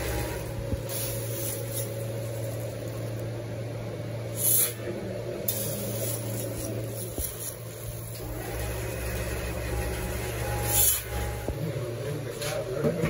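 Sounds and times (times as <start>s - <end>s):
machinery hum: 0.0s - 13.0s.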